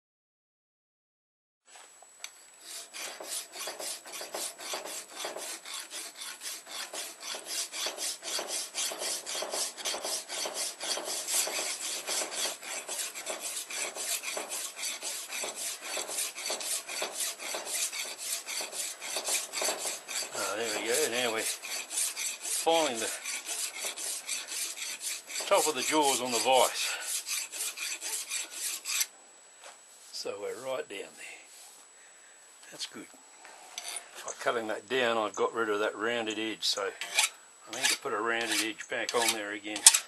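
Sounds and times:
file rasping across steel blade: 2.6 - 29.1, 37.0 - 40.0.

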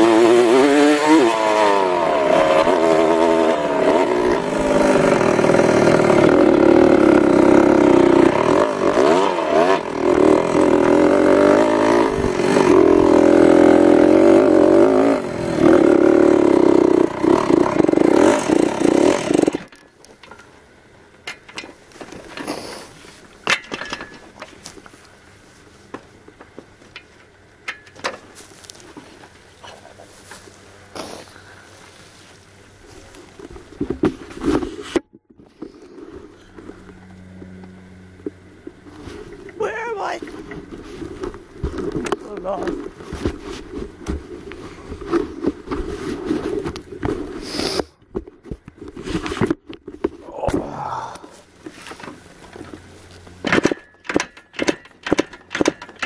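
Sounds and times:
dirt bike engine revving: 0.0 - 19.8
clicks and knocks: 53.4 - 56.0.

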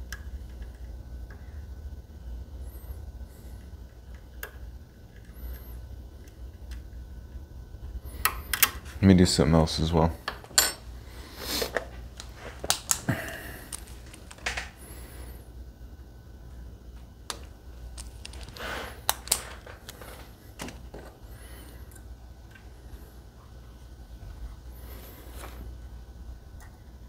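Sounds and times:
low steady hum: 0.0 - 27.0
lock-picking tools clicking: 17.3 - 20.0.

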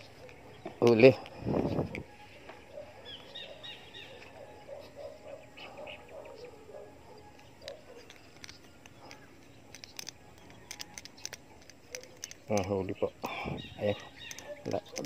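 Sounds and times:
birds calling: 0.0 - 15.0
sharp clicks: 7.2 - 12.8, 14.0 - 15.0.

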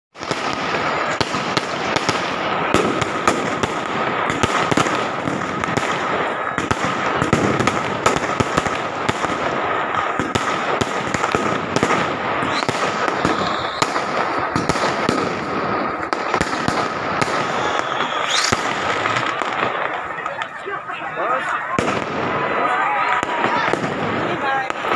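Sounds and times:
firecrackers banging and crackling: 0.1 - 24.9
rising firework whistles: 11.8 - 15.2, 15.8 - 20.6.

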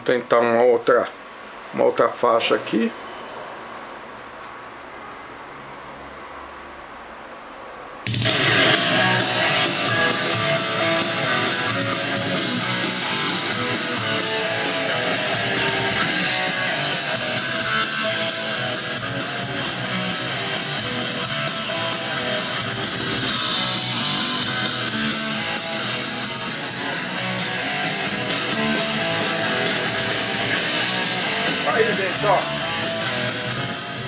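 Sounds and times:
guitar music through a speaker: 8.0 - 34.0.

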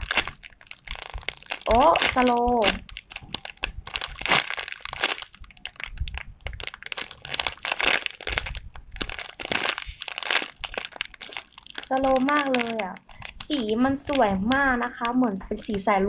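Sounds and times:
plastic bag crinkling: 0.0 - 16.0.

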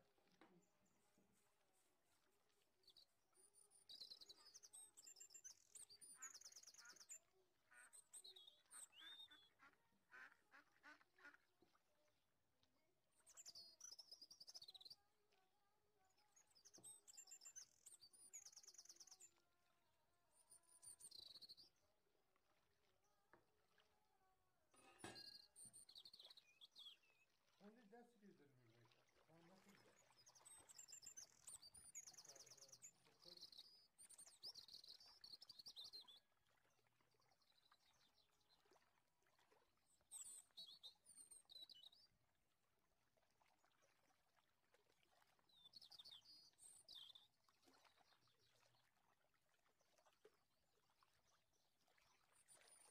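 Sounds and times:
faint bird chirps and trills: 0.0 - 11.4, 13.1 - 15.4, 16.0 - 23.1, 24.8 - 42.4, 45.1 - 50.2.

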